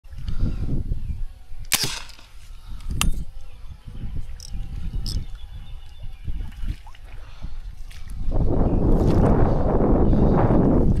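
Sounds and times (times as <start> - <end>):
air rifle firing crack: 1.7 - 2.4.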